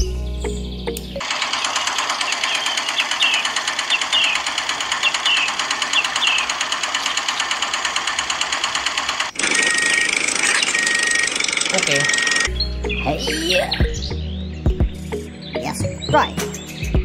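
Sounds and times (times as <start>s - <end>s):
small cement mixer rattling: 1.2s - 12.5s.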